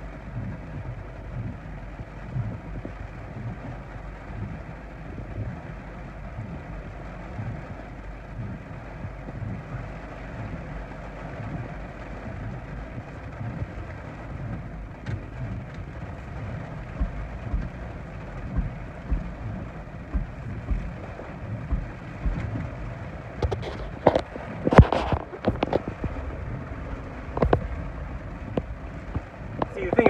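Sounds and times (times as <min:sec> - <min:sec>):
gusting wind against a car: 0:00.0 - 0:30.0
heavy rain on a car: 0:00.0 - 0:30.0
wind buffeting thumps: 0:00.1 - 0:30.0.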